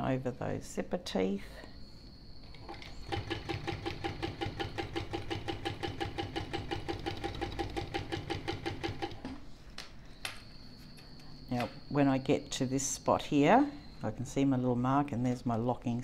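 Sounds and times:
sewing machine stitching: 0:02.6 - 0:09.2.

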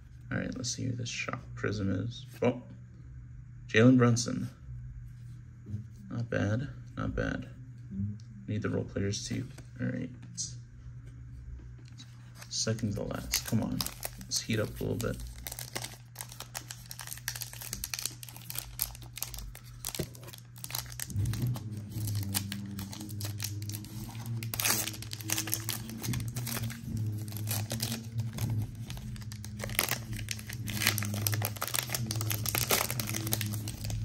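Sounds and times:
foil wrapper crinkling and tearing: 0:12.7 - 0:34.0.

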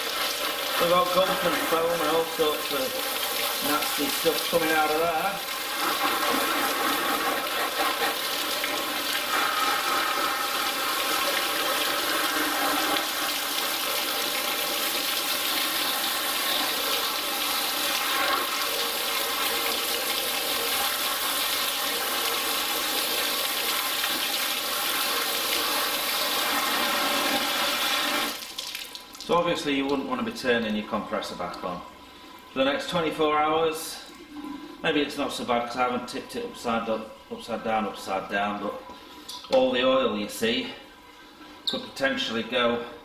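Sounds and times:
hose spraying water: 0:00.0 - 0:29.4.

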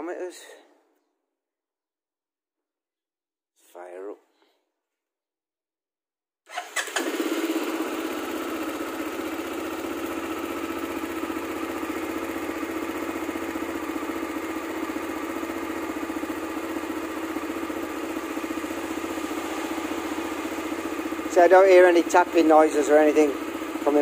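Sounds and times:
atv engine idling: 0:06.9 - 0:24.0.

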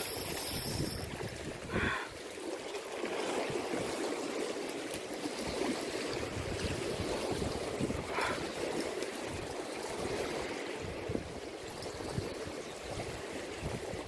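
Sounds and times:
wind rumbling on microphone: 0:00.0 - 0:02.2, 0:05.3 - 0:14.0
lake water splashing against bank: 0:00.0 - 0:14.0.

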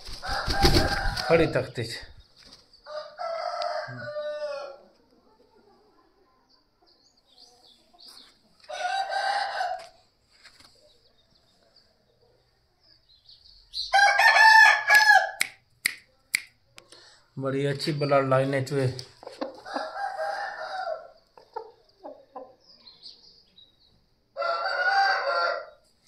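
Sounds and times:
rooster crowing: 0:00.2 - 0:01.4, 0:02.9 - 0:04.8, 0:08.7 - 0:09.9, 0:13.9 - 0:15.4, 0:19.7 - 0:21.2, 0:24.4 - 0:25.8.

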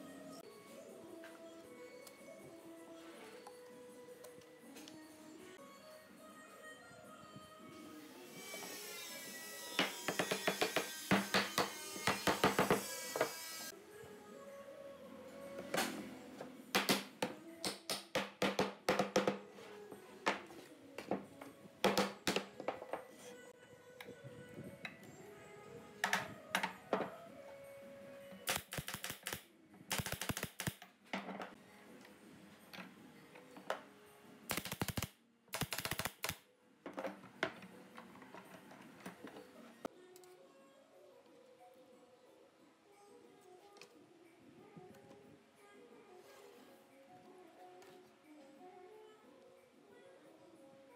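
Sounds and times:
pneumatic nailer rapid clicks: 0:28.5 - 0:30.8, 0:34.5 - 0:36.4.

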